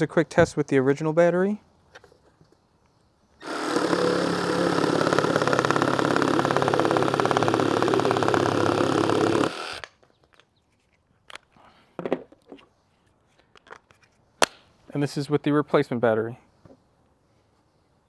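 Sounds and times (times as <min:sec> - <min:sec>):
jigsaw cutting wood: 0:03.4 - 0:09.9.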